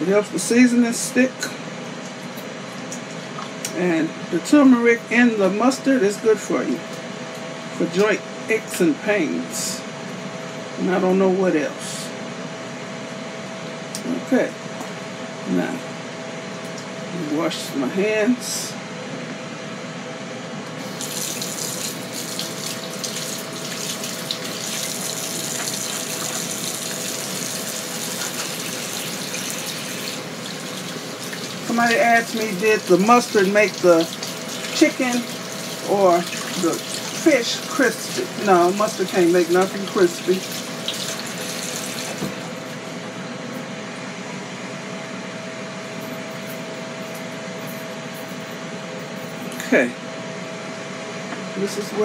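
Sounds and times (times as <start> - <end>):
fan hum: 0.0 - 52.0
thin steady whine: 0.0 - 52.0
faucet running: 20.8 - 42.8.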